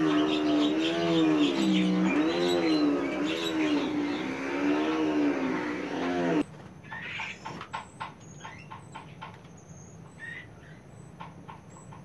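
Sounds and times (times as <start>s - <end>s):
engine drone wavering pitch: 0.0s - 6.4s
small birds chirping: 0.0s - 12.0s.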